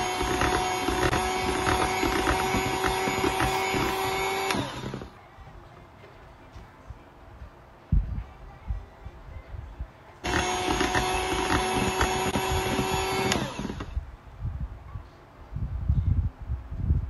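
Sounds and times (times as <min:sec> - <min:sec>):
electric mixer whining: 0:00.0 - 0:05.2, 0:10.2 - 0:14.0.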